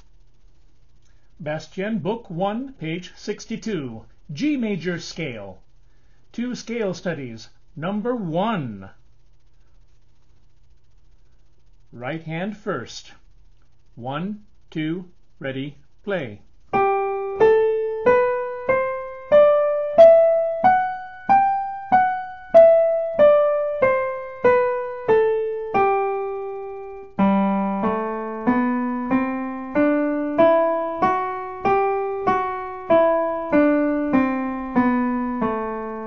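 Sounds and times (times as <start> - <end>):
digital piano playing a scale: 16.7 - 36.0.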